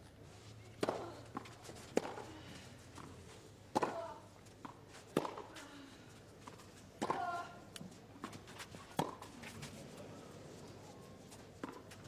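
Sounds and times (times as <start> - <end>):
tennis ball hit by rackets: 0.8 - 2.3, 3.7 - 5.5, 6.5 - 7.4, 8.2 - 9.3.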